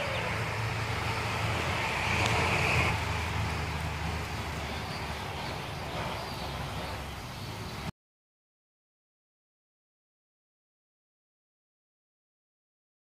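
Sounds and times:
distant road traffic rumble: 0.0s - 7.9s
vehicle passing: 0.0s - 7.9s.

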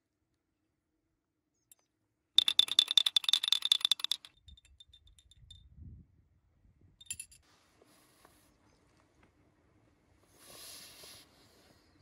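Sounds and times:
teaspoon clinking tea glass: 7.0s - 7.4s.

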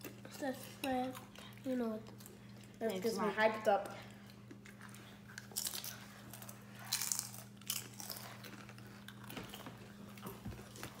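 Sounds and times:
low electrical hum: 0.0s - 11.0s
chips crunching: 5.3s - 9.7s.

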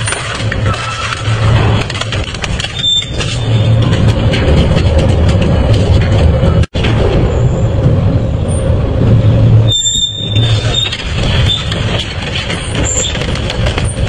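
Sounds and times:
high metallic squeal: 2.6s - 4.0s, 9.6s - 13.2s.

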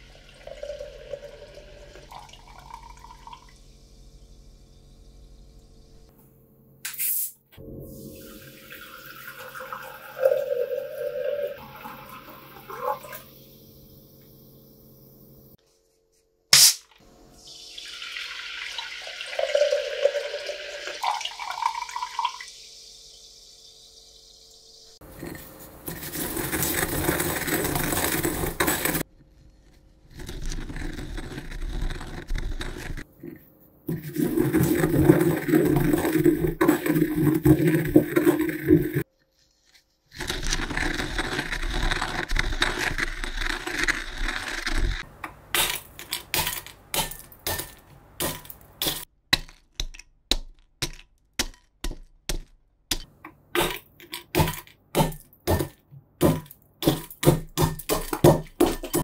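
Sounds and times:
liquid pouring: 0.0s - 3.6s, 7.9s - 13.8s, 17.4s - 24.5s, 33.9s - 39.1s.

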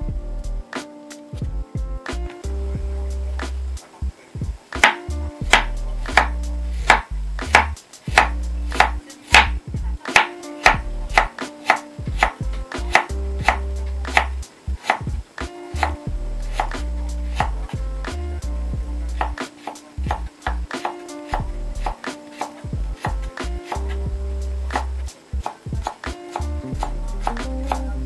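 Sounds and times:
low music bed: 0.0s - 28.0s
knife chopping on wooden board: 4.8s - 15.0s, 19.2s - 24.0s.

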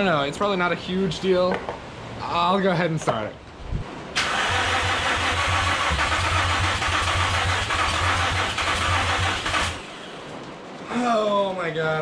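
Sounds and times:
car engine cranking on starter: 4.2s - 10.2s.

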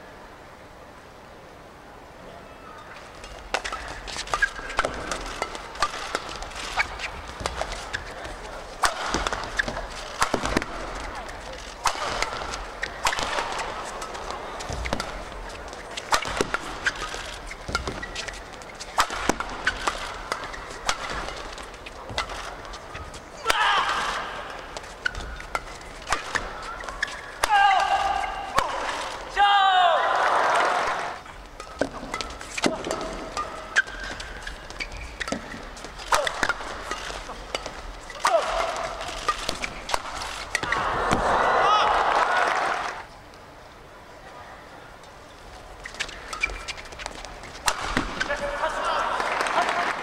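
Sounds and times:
shoes squeaking on court: 2.8s - 27.4s, 31.2s - 41.0s, 45.1s - 48.8s
racket hitting shuttlecock: 3.2s - 29.4s, 31.5s - 41.4s, 45.8s - 48.8s
crowd murmur: 6.5s - 19.0s.

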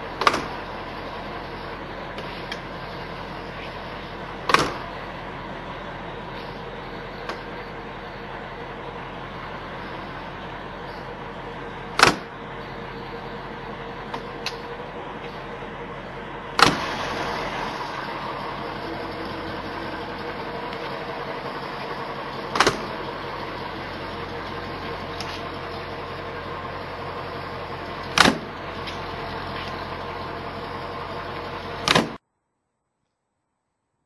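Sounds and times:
steady hum: 0.0s - 33.9s
car doors slamming: 4.4s - 4.9s, 11.9s - 12.3s, 16.6s - 17.6s, 22.4s - 23.1s, 28.1s - 28.5s, 31.8s - 32.2s.

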